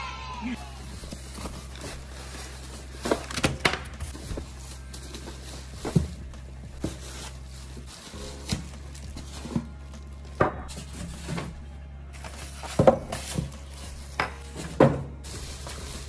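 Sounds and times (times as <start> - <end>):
light plastic rustling: 0.6 - 16.0
packing parts thumping on table: 1.0 - 4.6.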